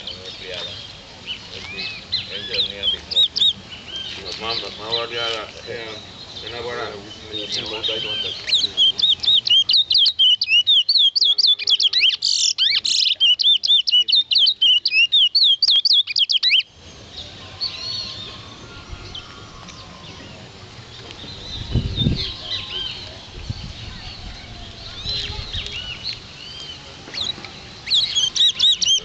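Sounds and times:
faint bird chirps: 0.0 - 29.0
finch singing whistled notes: 0.0 - 29.0.

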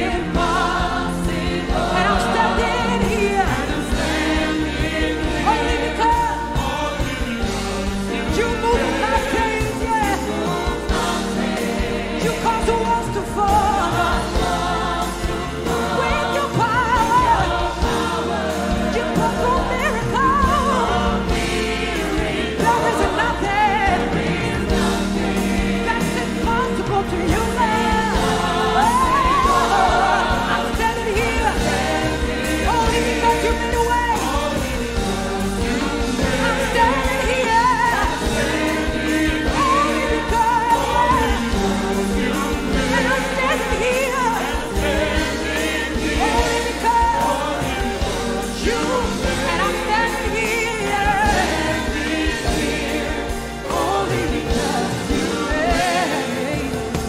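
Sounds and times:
backing singers: 0.0 - 57.0
band with keyboards: 0.0 - 57.0
woman singing lead: 15.2 - 57.0.

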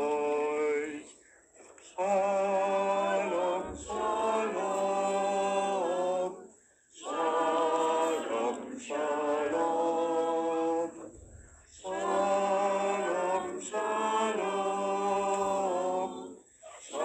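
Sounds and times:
group singing unaccompanied: 0.0 - 17.0.

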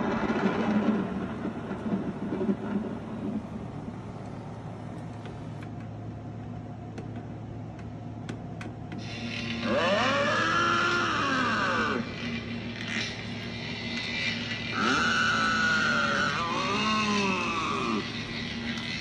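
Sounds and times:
electric motor humming: 9.0 - 19.0.

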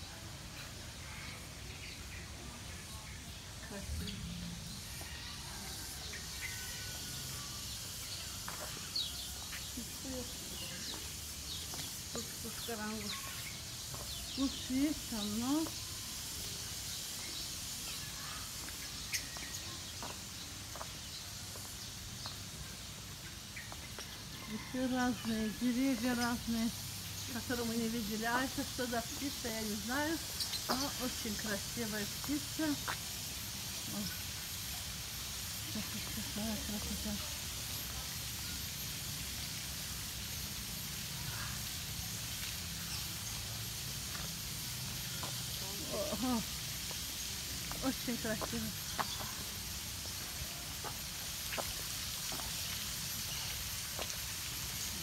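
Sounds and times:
steady hiss: 0.0 - 55.0
bird chirps: 27.1 - 33.0.

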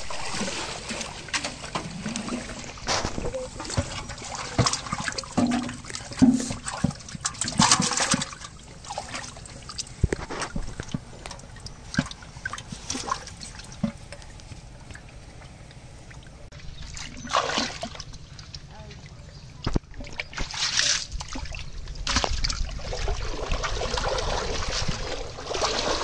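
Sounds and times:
water splashing in a metal pot: 0.0 - 14.4, 16.7 - 18.7, 19.8 - 26.0.

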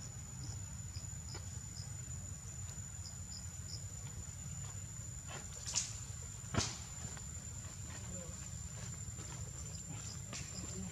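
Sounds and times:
insects droning: 0.0 - 10.9.

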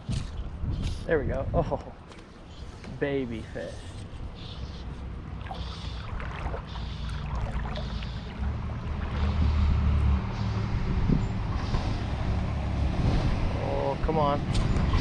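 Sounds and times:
wind rumbling on microphone: 0.0 - 1.9, 5.3 - 15.0.

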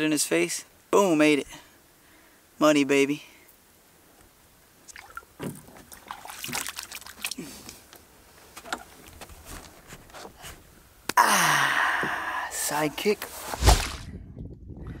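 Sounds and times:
water splashing against boat: 4.9 - 8.0.

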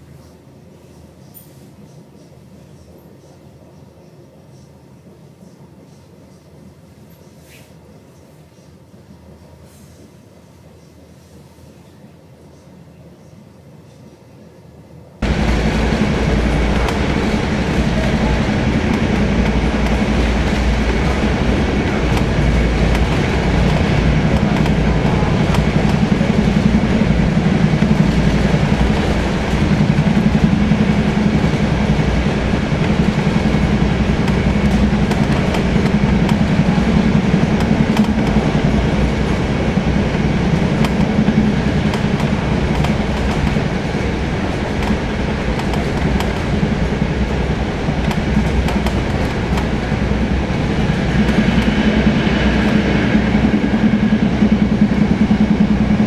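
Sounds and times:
train wheels rumbling on rails: 15.2 - 56.0.

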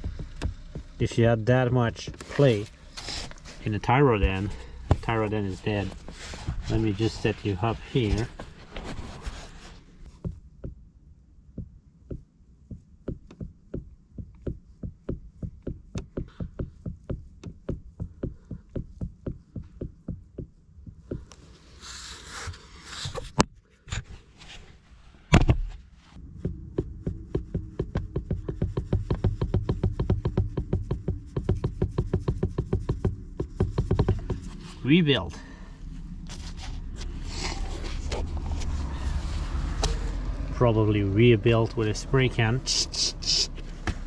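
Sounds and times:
steering arm knocking: 0.0 - 2.8, 3.6 - 9.4, 10.0 - 10.9, 11.5 - 21.6, 26.2 - 40.8
rustling: 2.2 - 10.3, 30.8 - 40.2.

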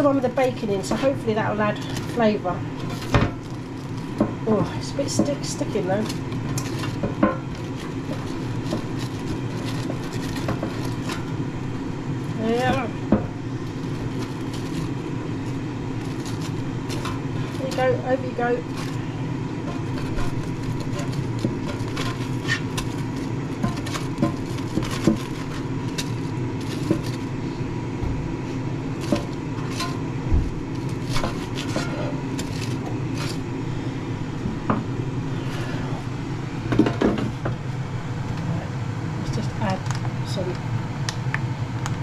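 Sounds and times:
spatula scraping metal basket: 0.0 - 11.4, 12.2 - 27.5, 28.9 - 33.5
air fryer fan humming: 0.0 - 42.0.

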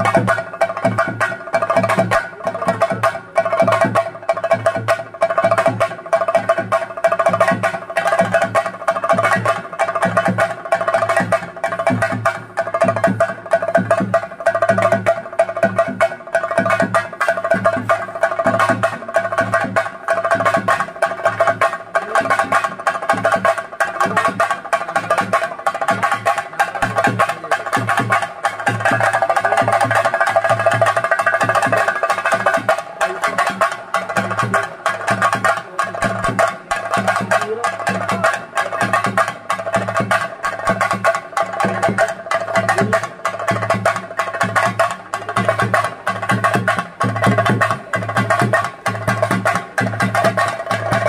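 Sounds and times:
drums beaten in fast rhythm: 0.0 - 51.0.

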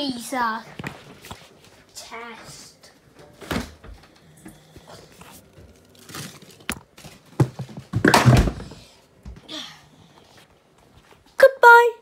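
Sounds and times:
knocks and thuds: 7.4 - 8.8.

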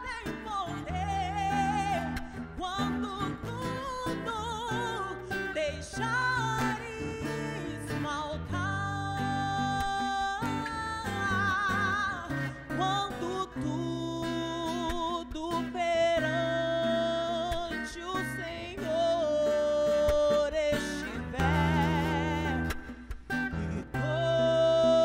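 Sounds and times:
strummed acoustic guitar: 0.0 - 25.0
woman singing with vibrato: 0.0 - 25.0.

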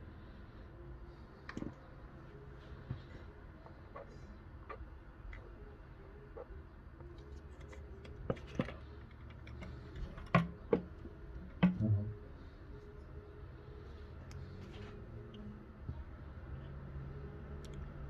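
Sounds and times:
plastic knocks and clacks: 11.6 - 12.0.

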